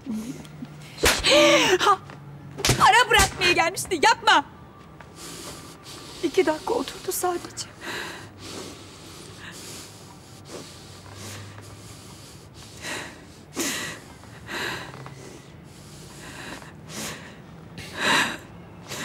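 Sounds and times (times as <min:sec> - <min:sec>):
person breathing hard through nose: 0:05.0 - 0:19.0.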